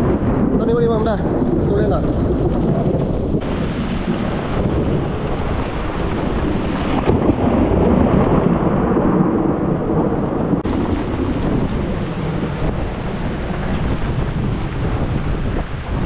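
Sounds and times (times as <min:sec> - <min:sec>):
rain: 0:00.0 - 0:16.0
thunder rumbling: 0:00.0 - 0:16.0.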